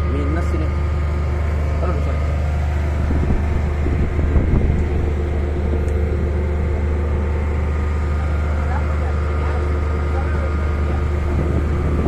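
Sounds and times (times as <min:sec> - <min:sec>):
pile driver engine droning: 0:00.0 - 0:12.0.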